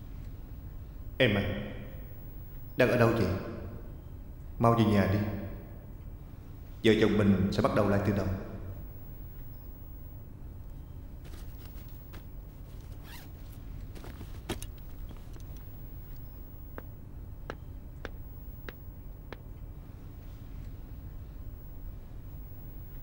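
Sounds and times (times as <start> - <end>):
low steady hum: 0.0 - 23.0
scraping and rustling: 11.2 - 16.2
bag zipper opening: 11.3 - 14.8.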